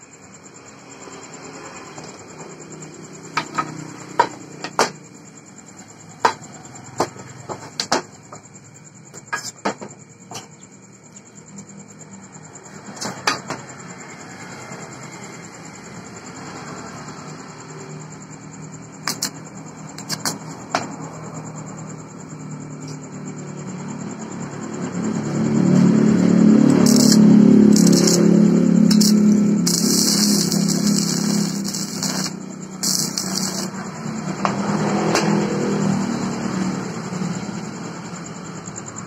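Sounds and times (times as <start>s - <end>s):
welding electrode crackles: 19.1s - 19.4s, 26.7s - 33.8s
loud low welding drone: 23.2s - 38.1s.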